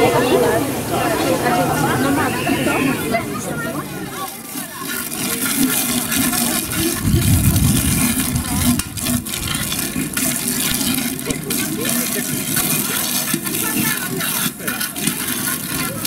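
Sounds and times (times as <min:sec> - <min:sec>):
water jet spraying from hose: 0:00.0 - 0:16.0.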